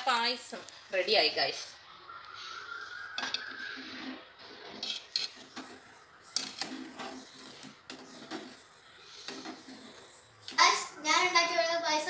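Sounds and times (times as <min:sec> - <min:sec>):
metal ladle scraping a pot: 0:03.2 - 0:10.4.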